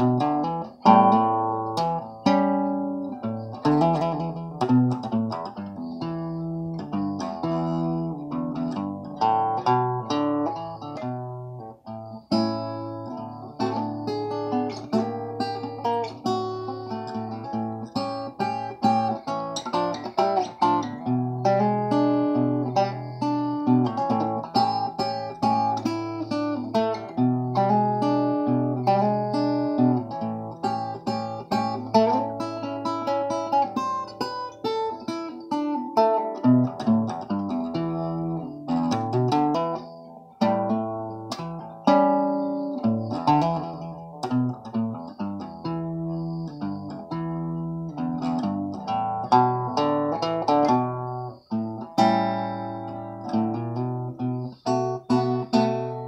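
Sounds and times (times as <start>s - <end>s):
fingerpicked resonator guitar blues: 0.0s - 56.0s.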